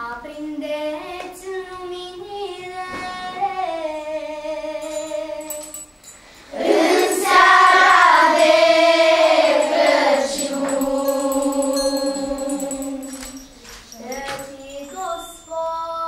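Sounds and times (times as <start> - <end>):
children's choir singing: 6.5 - 16.0.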